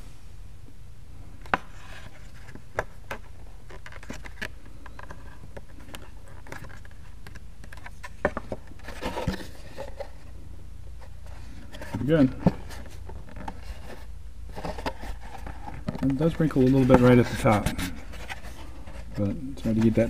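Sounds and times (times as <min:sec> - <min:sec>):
low steady hum: 0:00.0 - 0:20.0
plastic lid rustling: 0:01.5 - 0:10.3, 0:11.3 - 0:20.0
faint handling clicks and creaks: 0:02.4 - 0:10.2.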